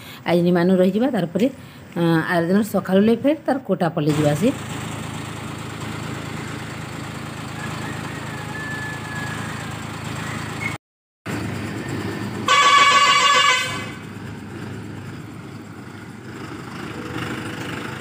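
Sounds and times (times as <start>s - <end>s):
bus engine idling: 0.0s - 18.0s
bus horn blast: 12.4s - 14.1s.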